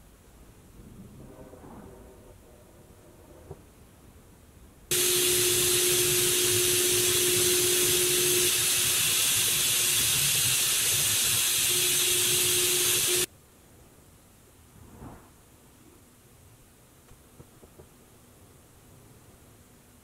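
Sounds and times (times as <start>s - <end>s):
spray gun hissing: 4.9s - 13.3s.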